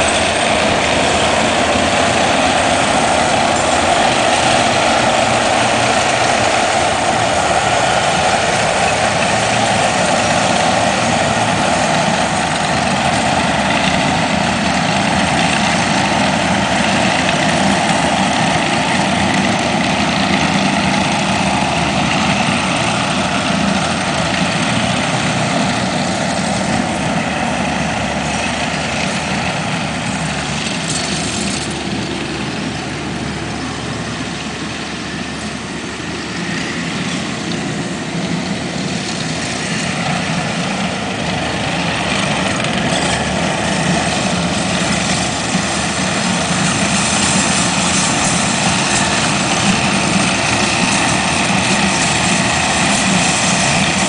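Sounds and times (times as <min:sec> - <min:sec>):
drag scraping across dirt: 0:00.0 - 0:32.6
diesel engine running: 0:00.0 - 0:54.0.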